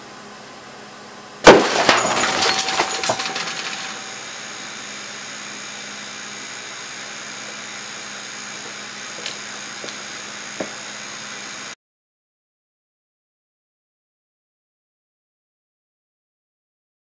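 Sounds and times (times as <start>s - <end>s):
glass bottle bursting bang: 1.4s - 4.0s
broken glass clattering: 1.5s - 4.2s.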